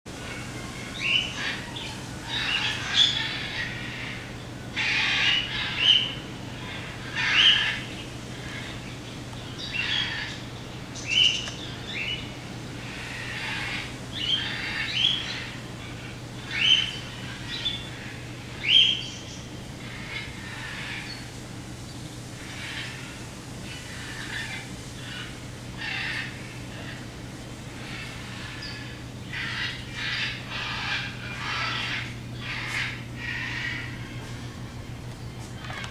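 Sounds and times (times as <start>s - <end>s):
steady low hum: 0.1s - 35.9s
monkeys chirping: 0.2s - 8.8s.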